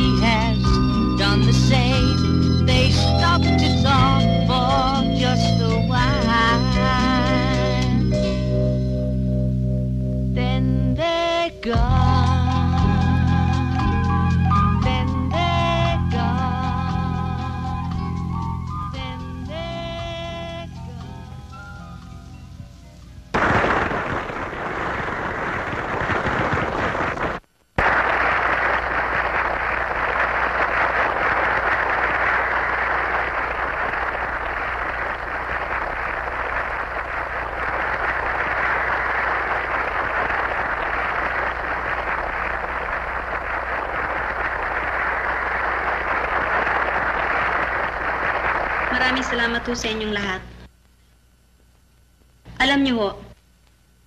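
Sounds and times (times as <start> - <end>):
audience applauding: 23.4 - 50.1.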